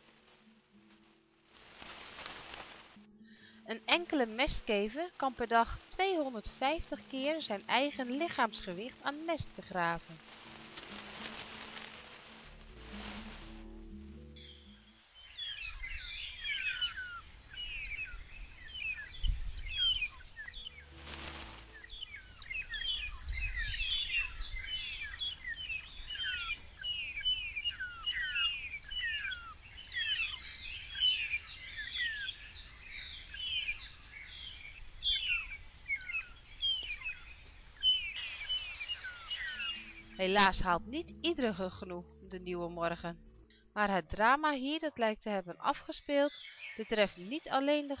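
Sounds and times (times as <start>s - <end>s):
birds chirping: 14.4s - 40.7s.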